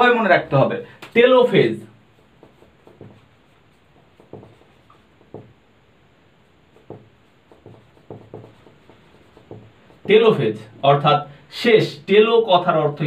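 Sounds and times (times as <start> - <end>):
marker writing on whiteboard: 1.1 - 5.6, 6.4 - 10.4.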